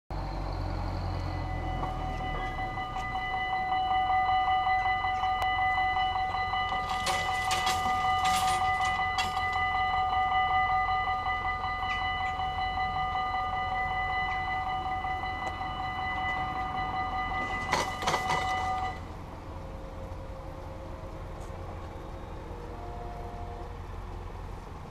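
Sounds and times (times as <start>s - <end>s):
level crossing bells ringing: 0.9s - 20.7s
barrier clattering: 6.7s - 9.7s, 17.3s - 19.0s.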